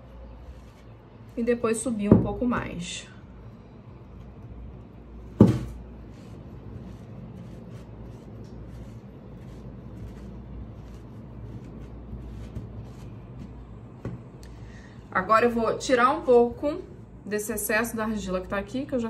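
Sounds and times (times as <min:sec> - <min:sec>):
low steady hum: 0:00.0 - 0:19.0
cloth pompom tapping and rubbing clay: 0:07.4 - 0:14.3.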